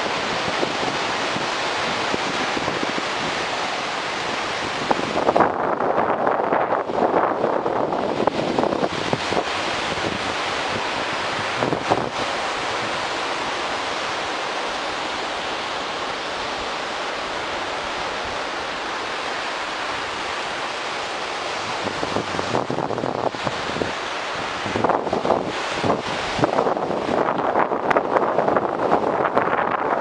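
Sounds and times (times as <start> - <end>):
ocean surf breaking: 0.0 - 30.0
wind buffeting microphone: 0.0 - 30.0.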